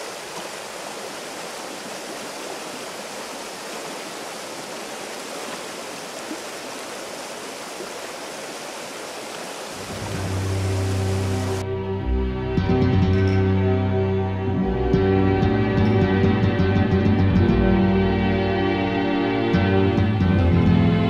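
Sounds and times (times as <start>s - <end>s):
water rushing over rocks: 0.0s - 11.6s
low music notes: 9.8s - 21.0s.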